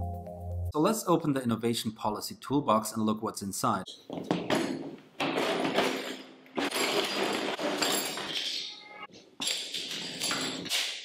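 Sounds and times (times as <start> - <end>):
hand tools clinking and clattering: 3.9 - 11.0.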